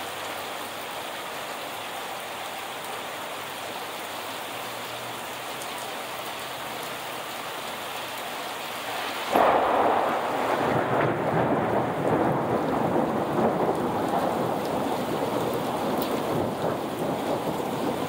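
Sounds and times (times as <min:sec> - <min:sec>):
heavy rain pouring: 0:00.0 - 0:18.0
thunderclap rumbling: 0:09.2 - 0:18.0.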